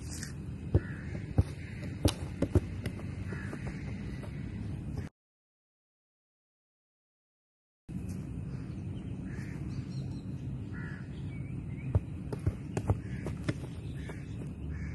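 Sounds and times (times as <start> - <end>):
outdoor background noise: 0.0 - 5.1, 7.9 - 14.9
bird calling: 0.7 - 5.1, 8.5 - 14.9.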